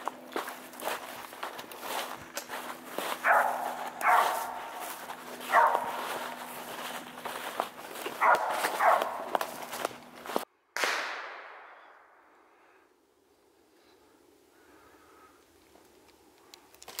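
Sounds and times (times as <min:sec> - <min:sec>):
footsteps crunching dry leaves: 0:00.0 - 0:10.5
dog barking: 0:03.1 - 0:06.8, 0:08.0 - 0:09.6.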